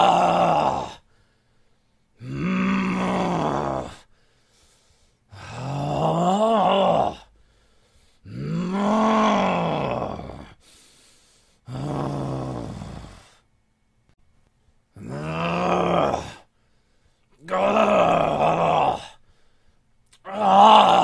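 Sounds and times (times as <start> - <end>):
man groaning angrily: 0.0 - 1.0, 2.2 - 4.0, 5.4 - 7.3, 8.3 - 10.6, 15.0 - 16.5, 17.4 - 19.2, 20.2 - 21.0.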